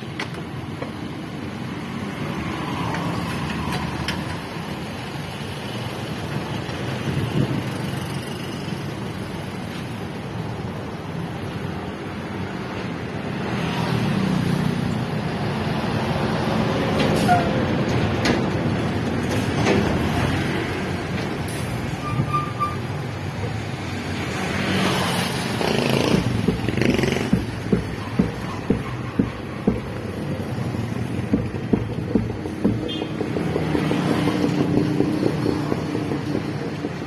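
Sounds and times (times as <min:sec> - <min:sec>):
heavy truck passing: 0:12.9 - 0:37.0
motorcycles passing: 0:23.1 - 0:37.0.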